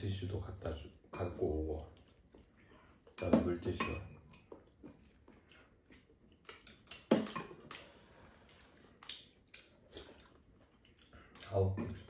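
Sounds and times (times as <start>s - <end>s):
utensils clinking on ceramic bowls: 3.2s - 4.4s.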